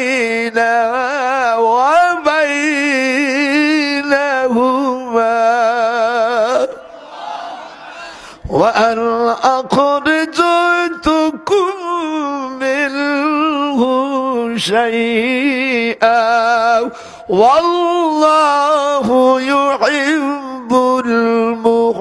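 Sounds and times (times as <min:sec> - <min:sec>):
man chanting melodically: 0:00.0 - 0:06.9, 0:08.4 - 0:22.0.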